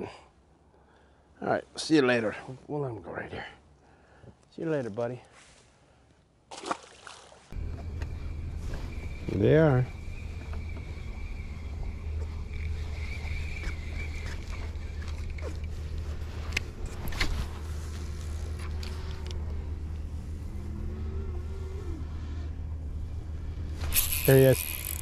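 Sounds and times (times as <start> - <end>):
electric motor hum and whine: 7.6 - 25.0.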